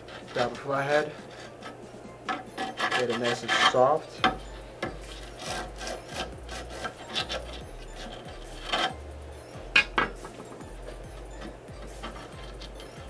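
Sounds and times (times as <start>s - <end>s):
screwdriver scraping grip tape: 1.2s - 9.0s, 10.9s - 13.0s.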